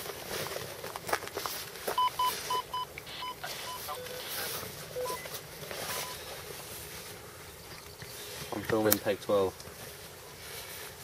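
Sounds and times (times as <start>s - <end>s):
soft rustling: 0.0s - 11.0s
electronic buzzer beeps: 2.0s - 4.3s.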